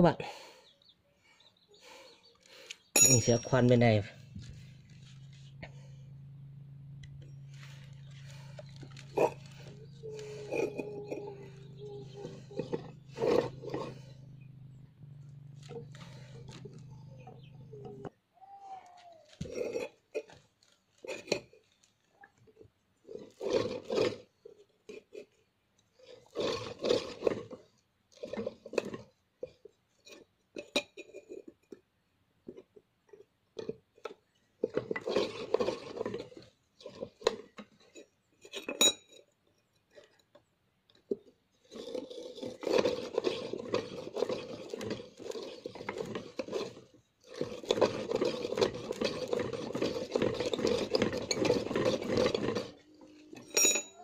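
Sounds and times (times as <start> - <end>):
drill bit scraping metal: 41.7 - 54.0.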